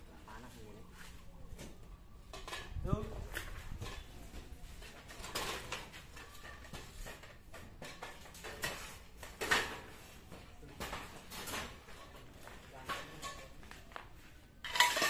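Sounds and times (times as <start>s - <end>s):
metal poles knocking and clanking: 5.2s - 9.9s, 14.6s - 15.0s.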